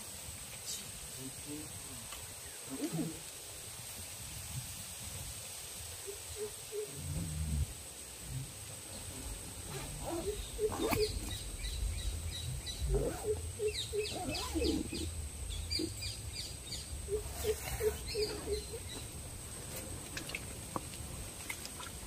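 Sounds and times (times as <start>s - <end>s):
birds calling low notes: 8.8s - 19.2s.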